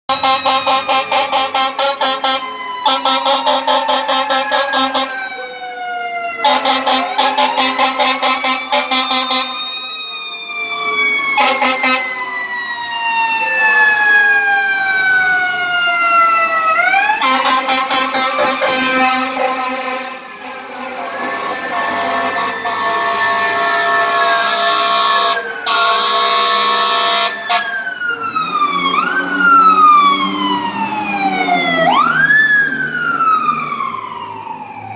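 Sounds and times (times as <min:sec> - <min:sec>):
stuttered air horn blasts: 0:00.1 - 0:05.2, 0:06.4 - 0:09.7, 0:11.4 - 0:12.2, 0:17.2 - 0:27.7
fire engine siren wailing: 0:00.1 - 0:34.9.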